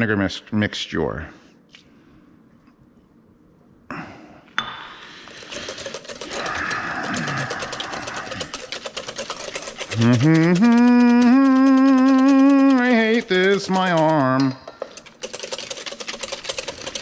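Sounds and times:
whisk beating against bowl: 5.2s - 17.0s.

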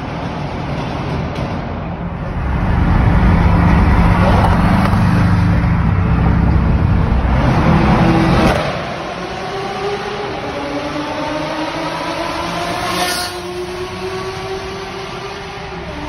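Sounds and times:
road and traffic noise: 0.0s - 16.0s.

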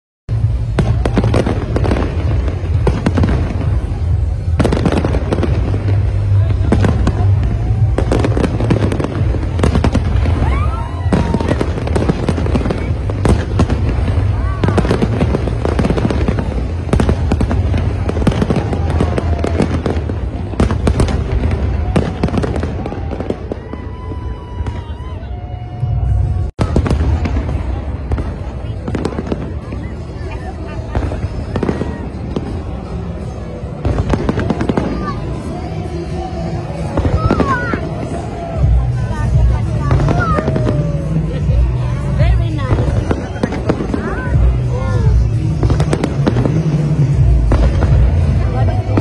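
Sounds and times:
steady low rumble: 0.3s - 22.0s
fireworks bursting with sharp bangs: 0.3s - 49.0s
low rumble of fireworks barrage: 0.3s - 49.0s.

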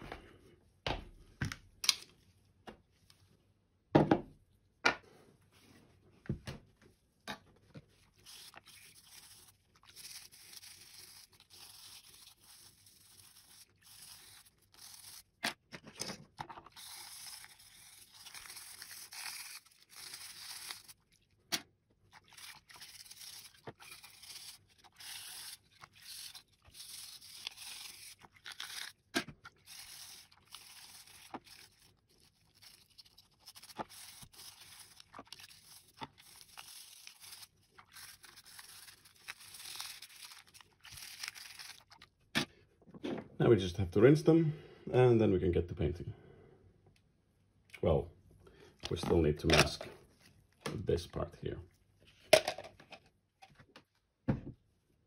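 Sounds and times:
plastic parts being scrubbed: 8.0s - 21.2s, 22.2s - 42.0s.

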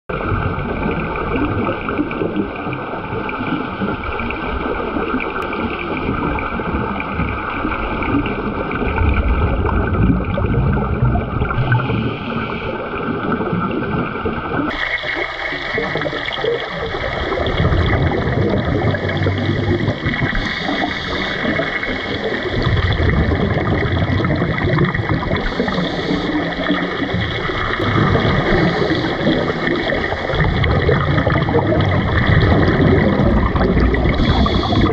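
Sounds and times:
exhaled bubbles: 0.1s - 34.9s
diver breathing through regulator: 11.5s - 13.0s, 25.2s - 29.8s, 33.5s - 34.9s.

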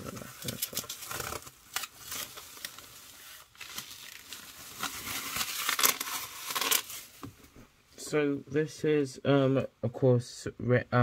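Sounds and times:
plastic packaging crinkling: 0.0s - 7.1s.

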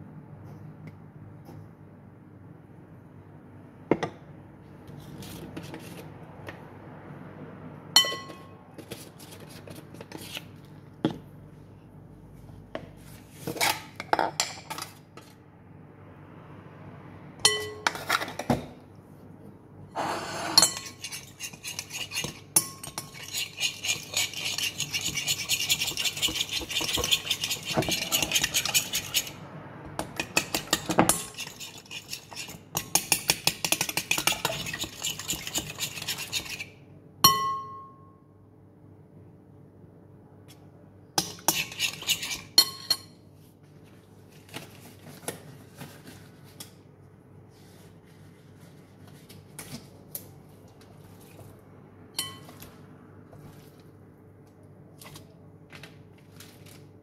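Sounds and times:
metal spoon clinking on glass: 8.0s - 8.5s, 17.5s - 18.0s, 52.2s - 52.5s.

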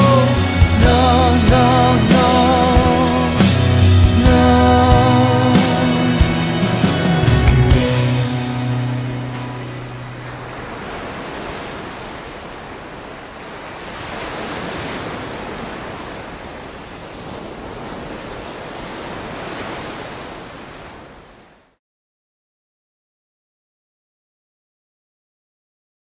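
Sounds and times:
ocean waves breaking: 0.0s - 21.8s.

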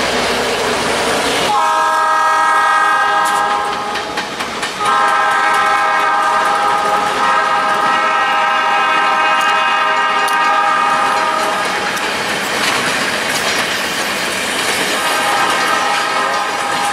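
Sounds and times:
train wheels clicking on rails: 0.0s - 16.9s
locomotive air horn chord: 1.5s - 3.9s, 4.8s - 11.6s, 15.0s - 16.9s.

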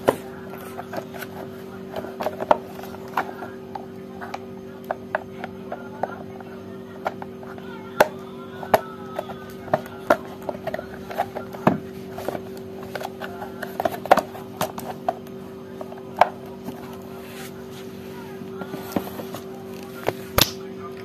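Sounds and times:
steady low hum: 0.0s - 21.0s
plastic housing clicking and knocking: 0.8s - 16.9s.

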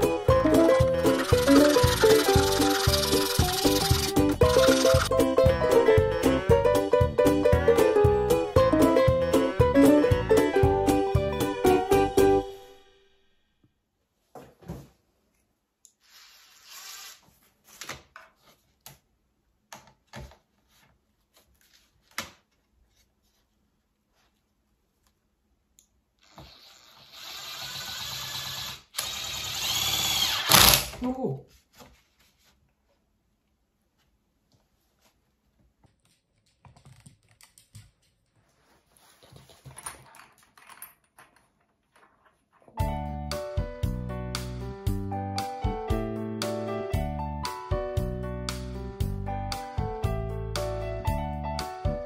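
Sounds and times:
drill rasping: 0.7s - 5.1s, 26.2s - 30.9s.

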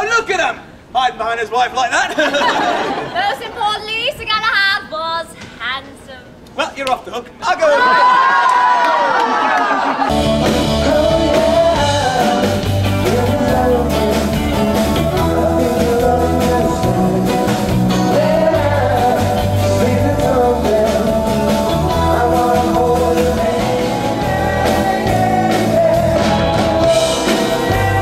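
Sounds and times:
rock band playing: 10.1s - 28.0s
man singing: 10.4s - 28.0s.

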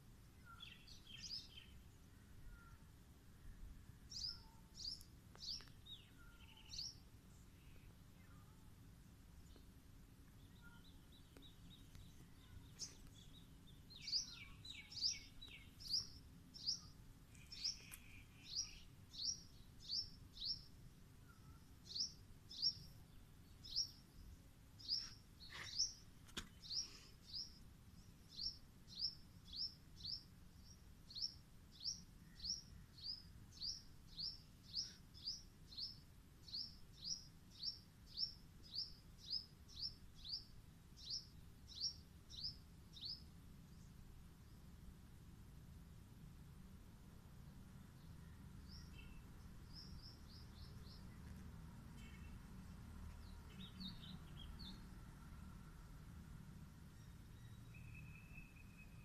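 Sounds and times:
bird chirps: 0.3s - 1.8s, 2.4s - 2.8s, 4.1s - 8.5s, 10.4s - 22.9s, 48.0s - 54.9s, 56.9s - 59.0s.

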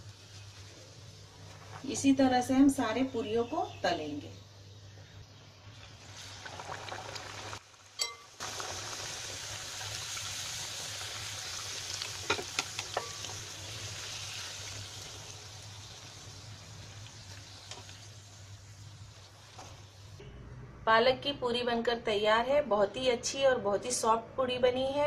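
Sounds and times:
hot oil sizzling: 0.0s - 2.5s, 5.5s - 20.2s.

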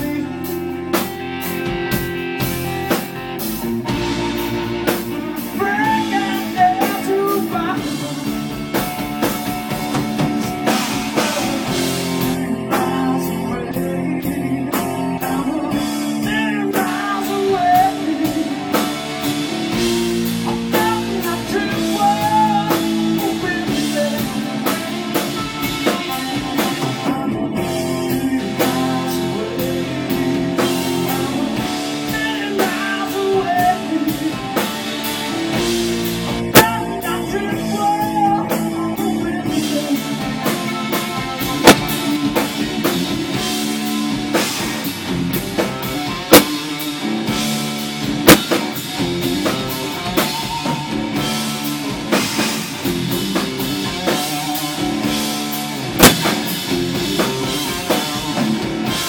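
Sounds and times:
blues-rock band playing: 0.0s - 59.0s
sharp drum hits: 41.6s - 42.0s, 46.3s - 46.5s, 48.3s - 48.6s, 56.0s - 56.5s.

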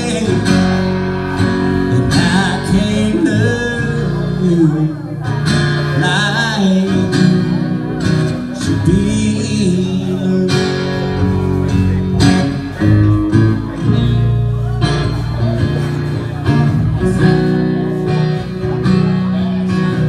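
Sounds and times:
country band guitar instrumental: 0.0s - 20.0s.

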